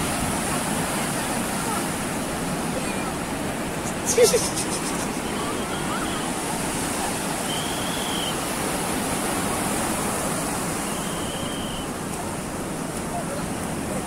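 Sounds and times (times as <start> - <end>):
sea surf breaking: 0.0 - 14.0.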